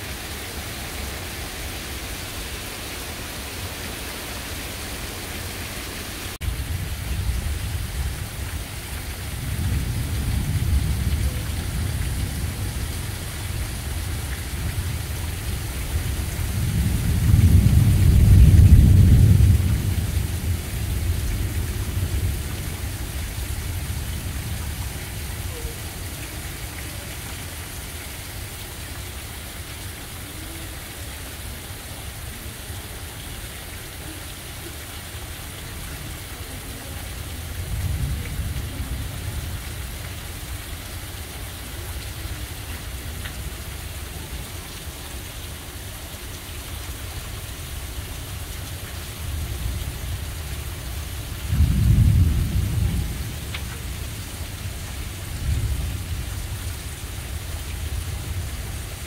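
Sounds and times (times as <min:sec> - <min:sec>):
heavy rain pouring: 0:00.0 - 0:59.0
thunder rumbling: 0:06.4 - 0:26.2, 0:37.3 - 0:40.8, 0:51.2 - 0:56.7.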